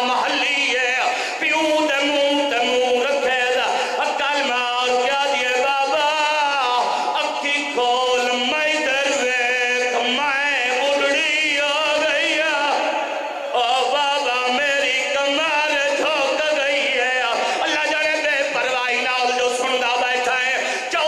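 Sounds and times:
man chanting into a microphone: 0.0 - 21.0.

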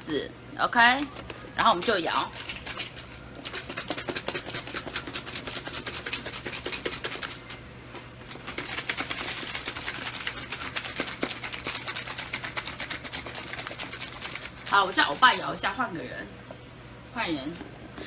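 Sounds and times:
food rattling in shaken lunchbox: 2.3 - 7.2, 8.4 - 15.2.

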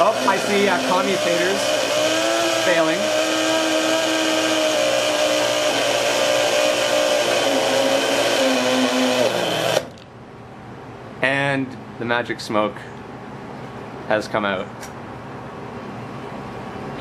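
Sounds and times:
blender motor whining: 0.0 - 9.9.

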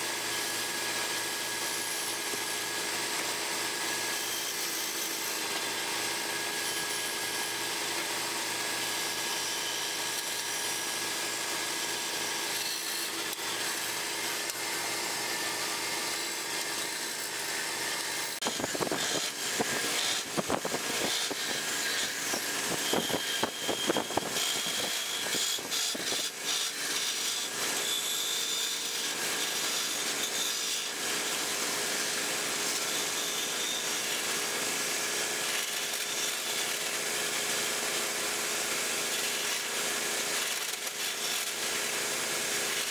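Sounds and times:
wood lathe humming: 0.0 - 42.9
turning tool scraping wood: 1.7 - 31.1.

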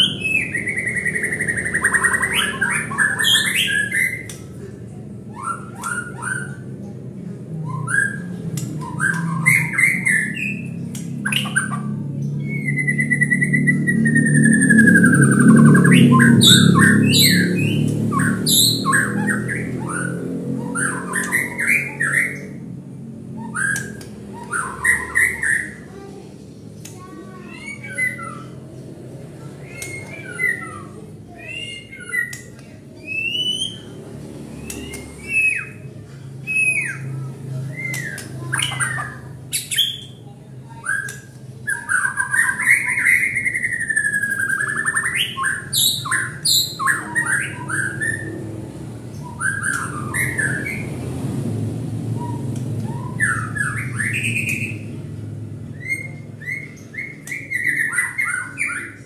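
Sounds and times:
bird singing whistled notes: 12.4 - 22.6.

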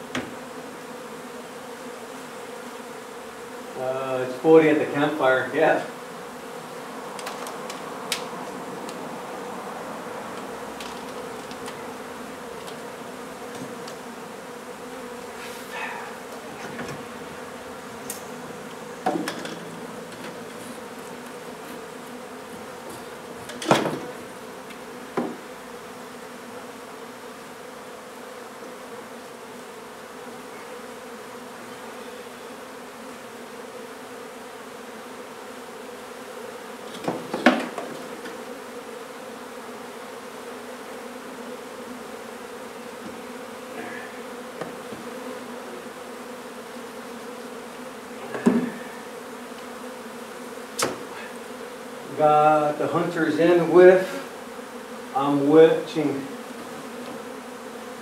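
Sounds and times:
bees buzzing: 0.0 - 58.0
wooden frames knocking: 19.0 - 20.6, 22.5 - 24.2, 25.1 - 25.4, 36.9 - 38.4, 48.2 - 48.8.

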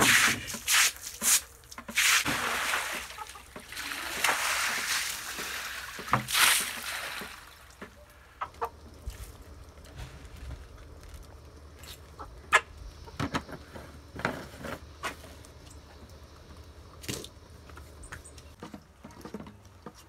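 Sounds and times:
chickens pecking: 2.9 - 4.0, 7.8 - 14.2.

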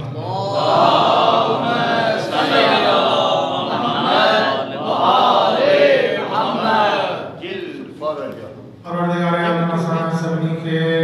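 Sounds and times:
men chanting through microphone: 0.0 - 7.8.

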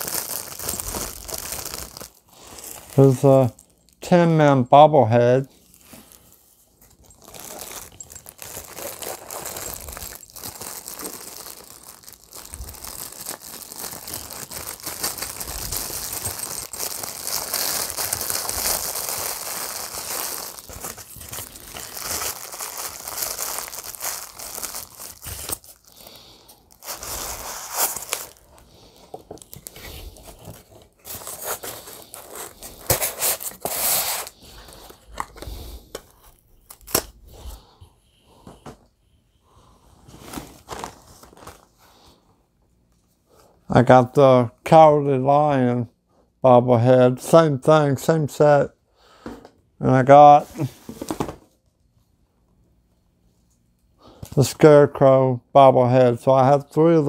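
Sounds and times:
packaging crinkling and tearing: 0.0 - 4.0, 5.6 - 37.2, 40.1 - 41.8.

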